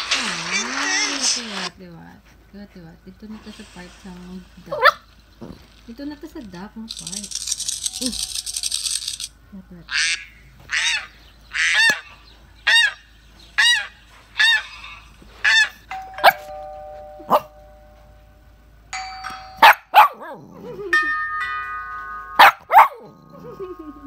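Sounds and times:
electronic doorbell ding-dong: 15.9 - 18.4, 19.0 - 20.0, 21.0 - 22.8
multi-note chime: 15.9 - 20.0, 20.8 - 24.0.

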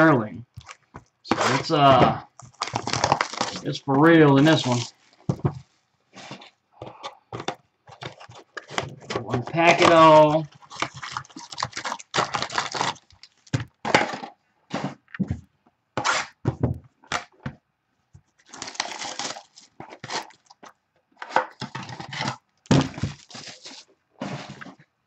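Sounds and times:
plastic wrapper crinkling: 0.5 - 5.3, 7.9 - 13.6, 18.4 - 20.7, 21.7 - 23.9.

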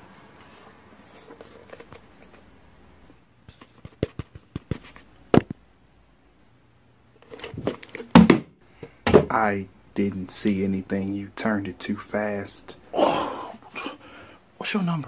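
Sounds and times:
paper rustling: 0.4 - 2.5, 3.5 - 5.1.

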